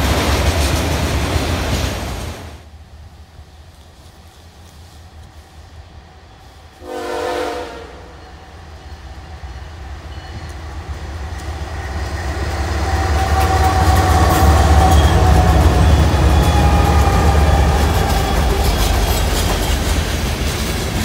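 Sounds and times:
locomotive engine rumble: 0:00.0 - 0:21.0
locomotive horn blast: 0:06.8 - 0:08.3.

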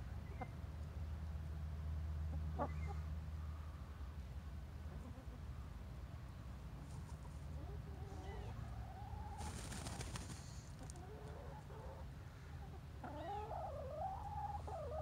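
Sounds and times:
hens calling: 0:07.7 - 0:15.0.

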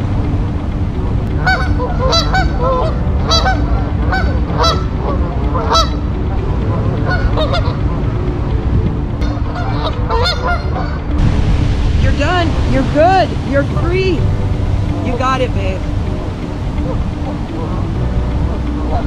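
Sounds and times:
steady low rumble: 0:00.0 - 0:19.0
geese honking: 0:01.3 - 0:08.6, 0:09.2 - 0:11.2, 0:15.0 - 0:19.0.

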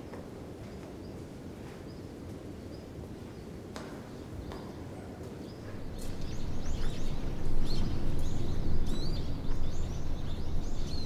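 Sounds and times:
birds chirping: 0:05.5 - 0:11.0.

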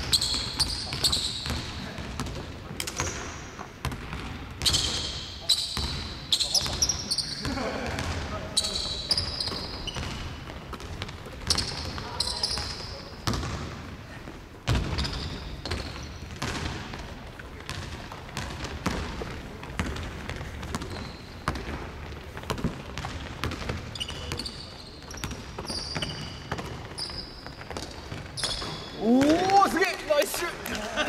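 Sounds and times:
sneaker squeaks: 0:00.0 - 0:16.7, 0:19.8 - 0:29.4
basketball bouncing on hardwood: 0:14.7 - 0:17.0, 0:17.7 - 0:24.4.

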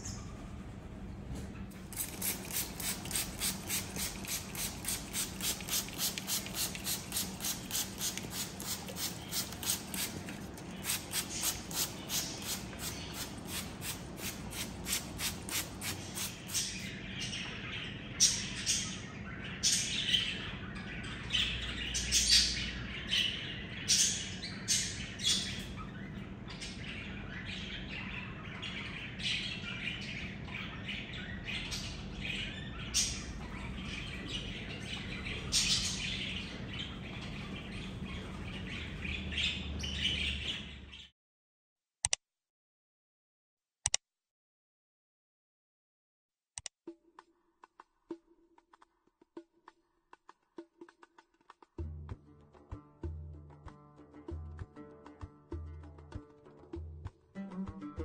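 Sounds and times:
birds chirping: 0:00.0 - 0:41.1.

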